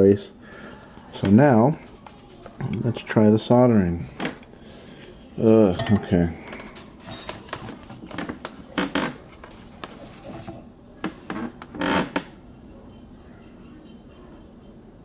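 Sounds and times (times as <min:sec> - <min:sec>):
scraping and rubbing handling noise: 0:04.0 - 0:11.7.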